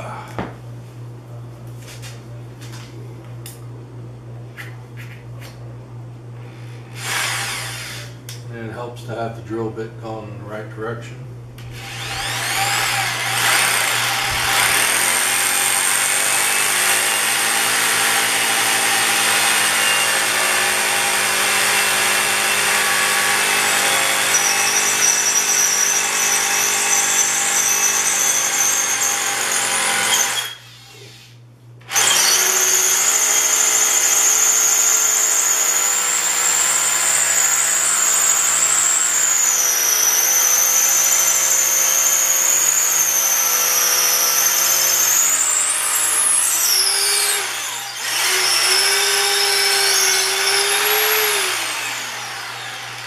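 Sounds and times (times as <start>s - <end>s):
hammer drill boring into concrete: 6.9s - 8.2s, 11.8s - 30.8s, 31.9s - 53.0s.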